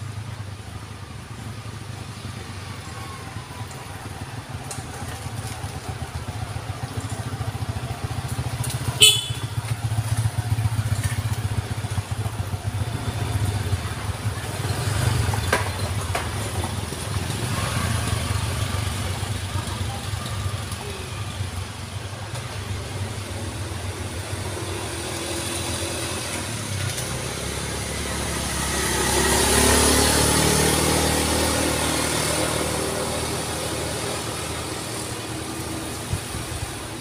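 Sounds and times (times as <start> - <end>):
small motorcycle engines humming: 0.0 - 37.0
short sharp horn beep: 9.0 - 9.6.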